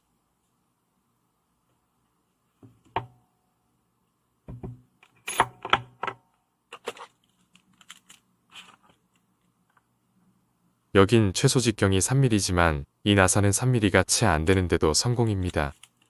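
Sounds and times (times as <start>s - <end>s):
metal flashlight knocking on wooden table: 4.5s - 4.8s.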